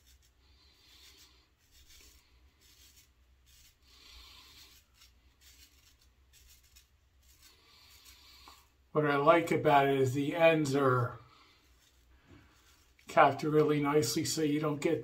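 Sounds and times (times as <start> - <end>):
razor blade rasping on stubble: 0.0 - 8.8.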